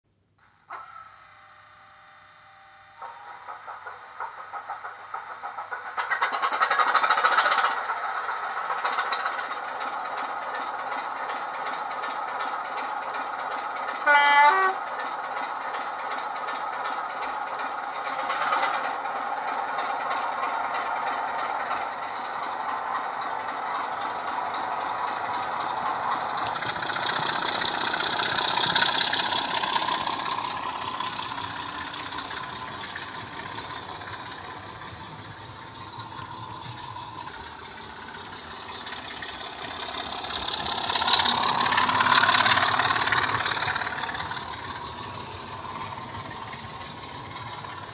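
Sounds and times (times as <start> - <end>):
diesel locomotive engine sound: 0.4 - 47.9
train horn blast: 14.0 - 14.9.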